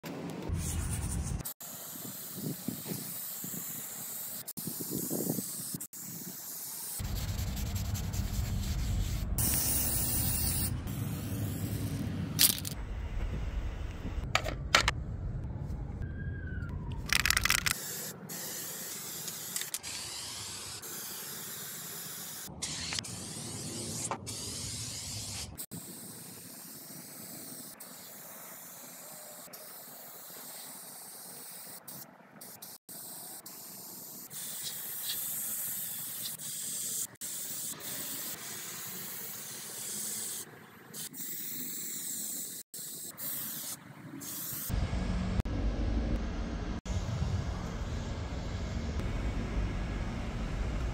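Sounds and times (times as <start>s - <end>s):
aerosol spray cans hissing: 1.6s - 12.8s, 17.1s - 44.7s.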